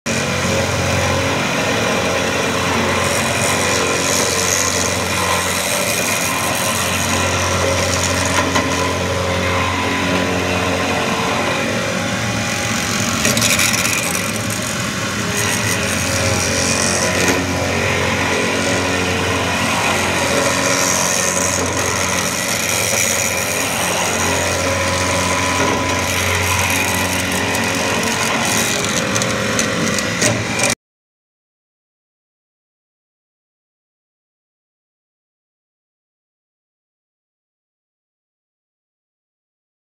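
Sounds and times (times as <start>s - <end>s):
milling machine cutting metal: 0.1s - 30.8s.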